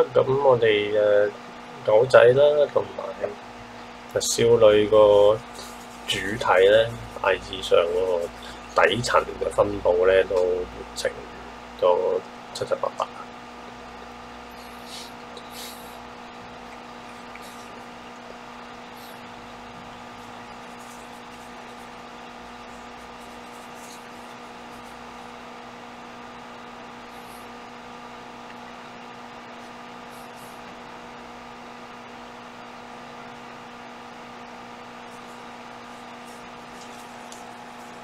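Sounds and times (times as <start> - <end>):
electrical hum: 0.0 - 38.0
hiss: 14.5 - 16.0
short high hisses: 14.5 - 16.0.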